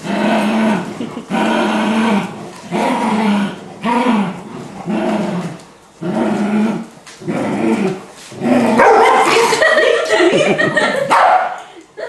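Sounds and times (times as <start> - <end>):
puppy growling: 0.0 - 9.7
puppy barking: 8.8 - 9.4, 11.1 - 11.6.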